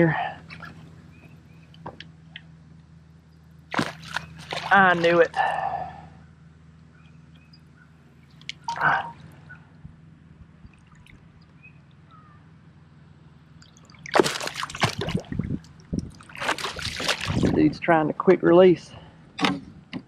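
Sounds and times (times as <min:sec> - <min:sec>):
fish splashing in water: 0:03.7 - 0:05.5, 0:13.6 - 0:17.6.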